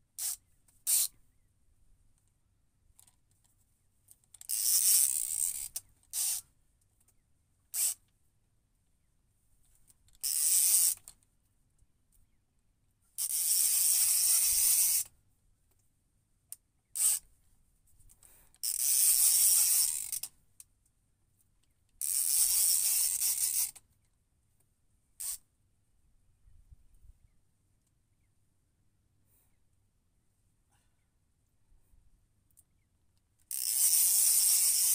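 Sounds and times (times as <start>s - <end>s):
fishing reel ratcheting: 0.2s - 1.1s, 4.3s - 6.4s, 7.7s - 8.0s, 10.1s - 11.1s, 13.2s - 15.1s, 17.0s - 17.2s, 18.6s - 20.3s, 22.0s - 23.8s, 25.2s - 25.4s, 33.5s - 34.9s.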